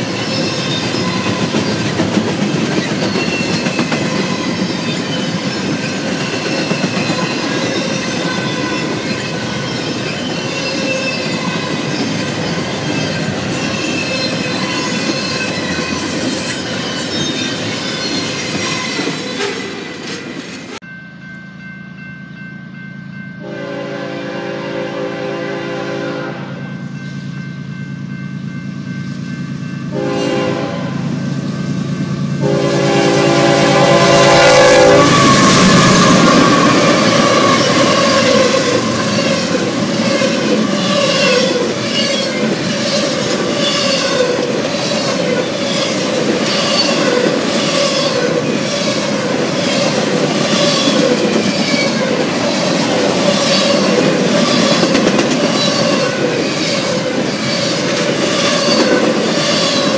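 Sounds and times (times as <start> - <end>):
train wheels clacking over rail joints: 0.0 - 20.8
diesel locomotives passing: 0.0 - 59.9
wavering wheel squeal: 2.8 - 20.3
diesel locomotive horn blasts: 23.4 - 27.2, 29.9 - 31.4, 32.3 - 42.1.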